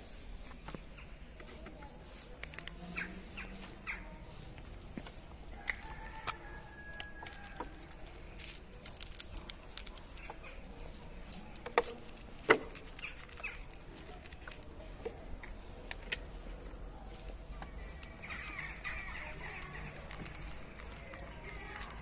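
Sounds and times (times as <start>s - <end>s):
cat crunching dry kibble: 2.4s - 4.0s, 5.5s - 16.4s, 18.0s - 22.0s
faint bird calls: 2.8s - 4.5s, 17.8s - 20.2s.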